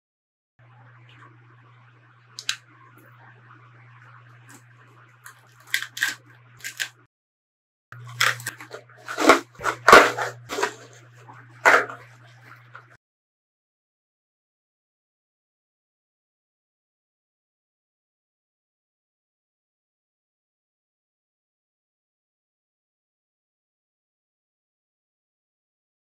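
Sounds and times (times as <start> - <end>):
faint low hum: 0.6 - 7.1
bubble wrap crinkling: 5.2 - 7.0, 8.0 - 10.9.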